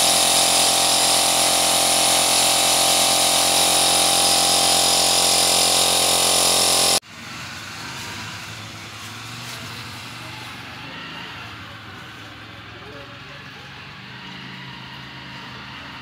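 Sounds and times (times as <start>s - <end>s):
electric paddle mixer whining: 0.0s - 7.0s.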